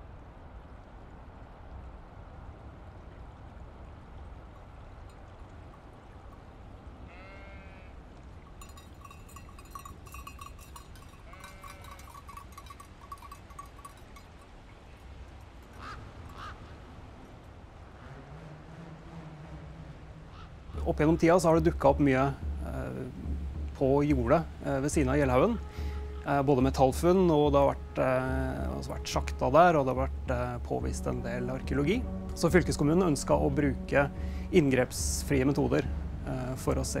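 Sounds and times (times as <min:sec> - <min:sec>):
low wind rumble: 0:00.0 - 0:37.0
sheep bleating: 0:07.1 - 0:08.0, 0:11.0 - 0:12.7.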